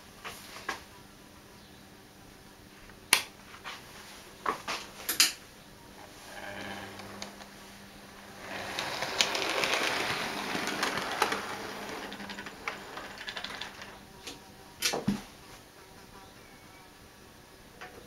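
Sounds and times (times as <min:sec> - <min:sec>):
model train wheels rattling on track: 0:08.1 - 0:14.0.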